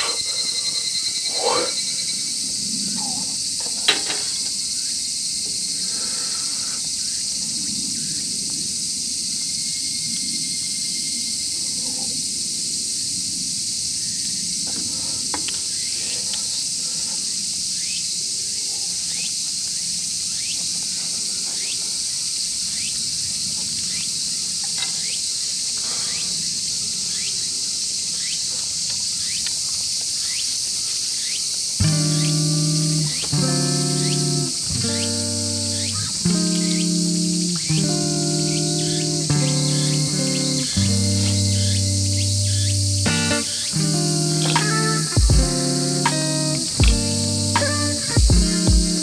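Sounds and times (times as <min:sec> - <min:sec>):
high-pitched insect chorus: 0:00.0 - 0:49.0
sharp click: 0:44.4 - 0:45.0, 0:46.1 - 0:47.8.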